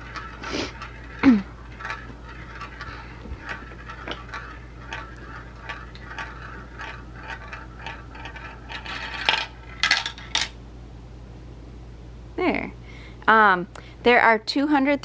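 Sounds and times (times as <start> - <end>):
marble rolling in plastic bowl: 0.0 - 10.5.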